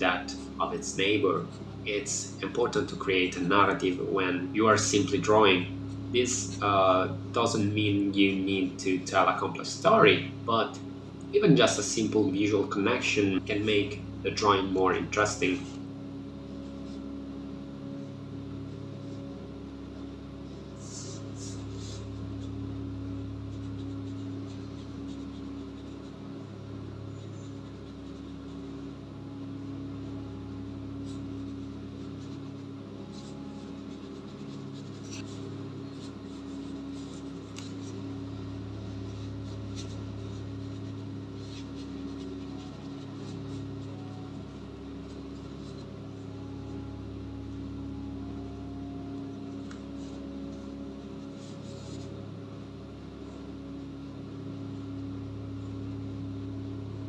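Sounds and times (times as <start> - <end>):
steady low drone: 0.0 - 57.0
brush scratching on paper: 16.5 - 17.2, 18.6 - 53.8.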